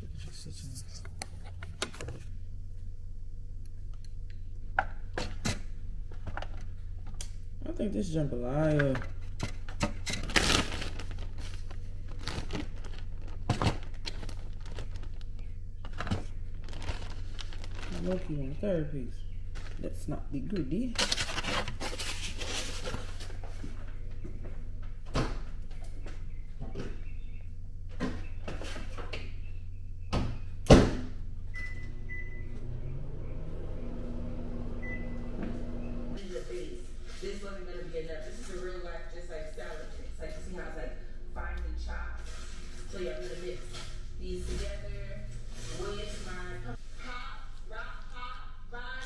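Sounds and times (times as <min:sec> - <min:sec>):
low steady hum: 0:00.0 - 0:49.0
packaging crinkling: 0:10.0 - 0:18.4, 0:20.9 - 0:23.3.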